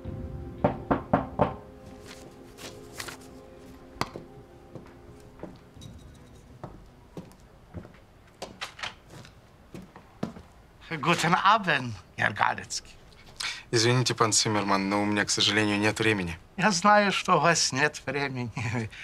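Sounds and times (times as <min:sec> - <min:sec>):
quiet background music: 0:00.0 - 0:13.0
papers and folder handled: 0:01.9 - 0:04.2.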